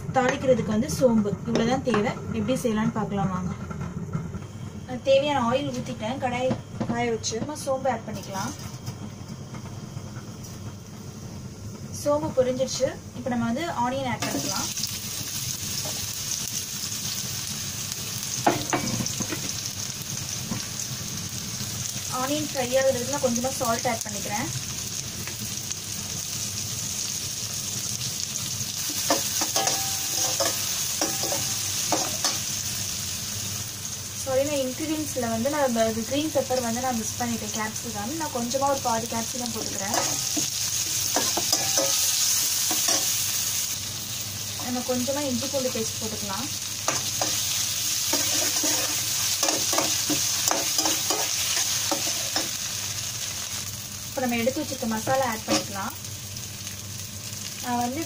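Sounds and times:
onions sizzling in hot oil: 0.0 - 58.0
metal spatula scraping a pan: 29.0 - 32.4, 46.9 - 52.6, 55.4 - 55.8.

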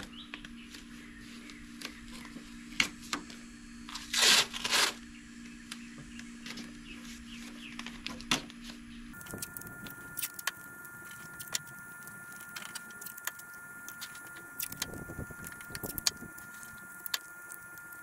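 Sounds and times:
faint high whine: 8.9 - 18.0
masking tape crackling and clicking: 9.1 - 18.0.

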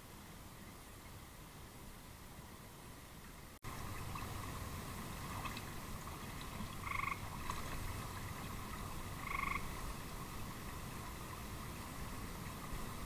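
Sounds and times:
steady hiss: 0.0 - 13.0
short frog calls: 6.8 - 7.3, 9.2 - 9.7.

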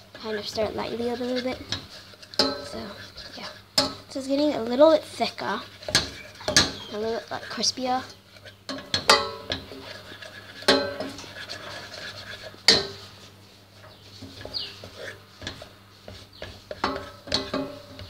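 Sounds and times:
utensil scraping steel pot: 0.0 - 18.0
sharp metallic clanks: 8.7 - 9.7.

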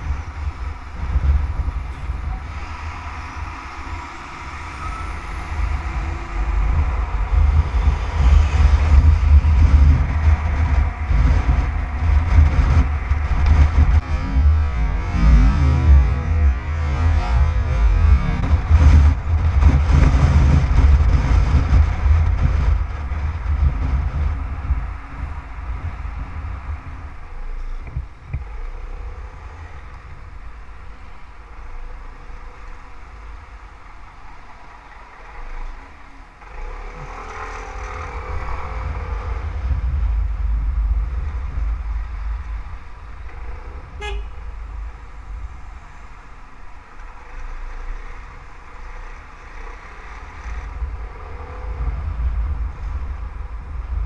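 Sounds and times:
wind noise on microphone: 0.0 - 54.0
vehicle horn: 43.9 - 44.6.

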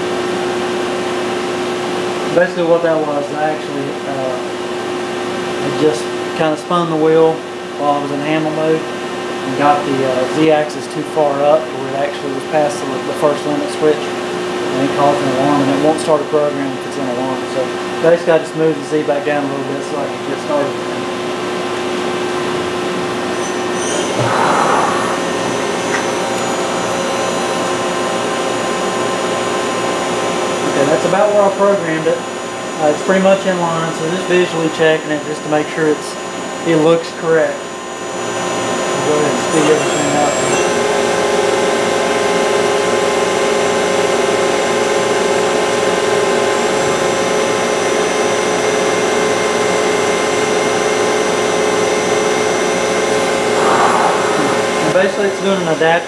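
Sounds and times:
machine spindle whine and hiss: 38.4 - 40.9
brief rushing hiss: 53.5 - 55.2.

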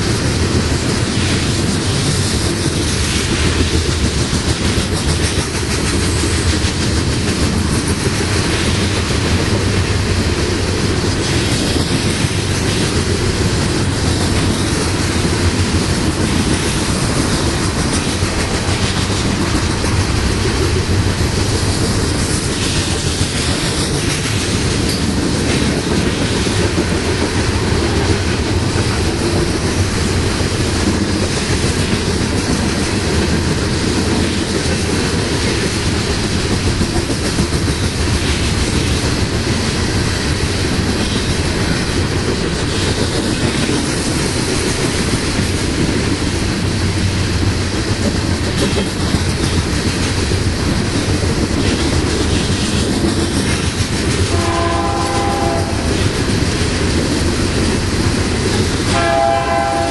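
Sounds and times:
steel wheels rolling on rails: 0.0 - 59.9
locomotive horn chord: 54.3 - 55.9, 58.9 - 59.9.

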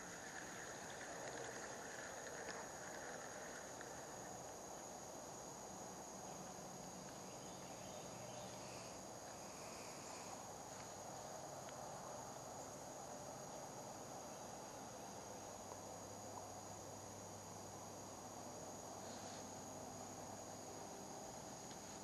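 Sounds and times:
faint small ticks: 0.0 - 5.0, 6.3 - 7.7, 8.3 - 12.8, 21.3 - 22.0
insects droning: 0.0 - 22.0
soft outdoor hiss: 0.0 - 22.0.

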